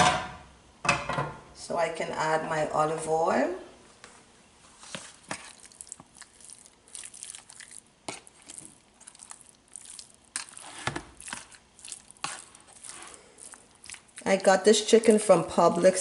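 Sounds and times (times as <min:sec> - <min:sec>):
spoon stirring wet chicken: 0:04.8 - 0:16.0.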